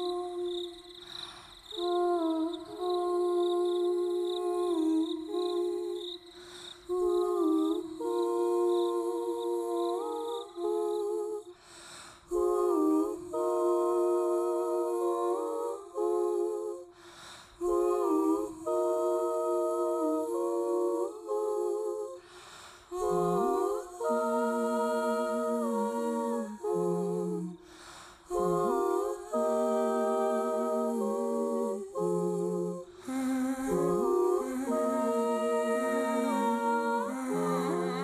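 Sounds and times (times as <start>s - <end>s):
woman singing wordless notes: 0.0s - 11.6s, 22.9s - 27.6s, 28.3s - 38.0s
singer breathing: 1.0s - 1.7s, 6.3s - 6.9s, 11.5s - 12.3s, 16.9s - 17.6s, 22.2s - 23.0s, 27.6s - 28.3s.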